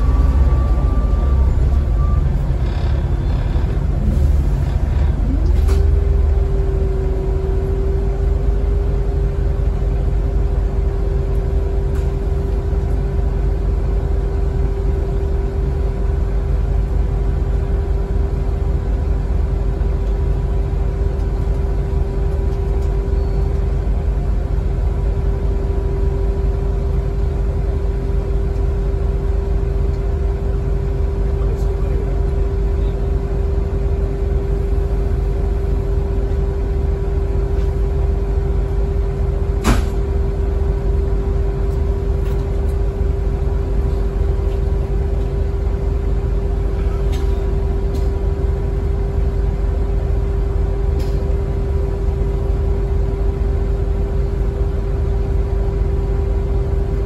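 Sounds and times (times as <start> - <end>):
humming drivetrain tone: 0.0 - 19.1
bus diesel engine rumble: 0.0 - 57.0.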